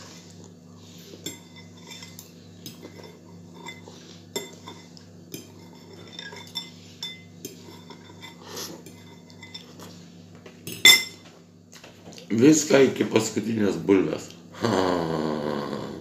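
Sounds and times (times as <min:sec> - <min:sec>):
fork scraping against a bowl: 0:01.0 - 0:10.0.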